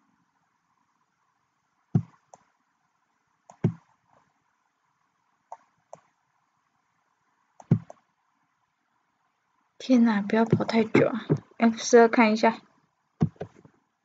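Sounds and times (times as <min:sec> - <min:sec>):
computer mouse buttons clicking: 0:03.5 - 0:03.8, 0:07.6 - 0:08.0.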